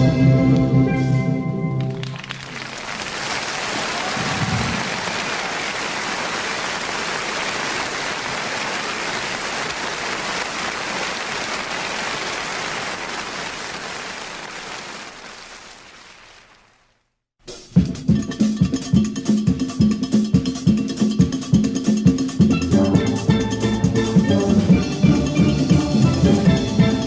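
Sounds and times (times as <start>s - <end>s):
rain-like rushing hiss: 3.8s - 17.0s.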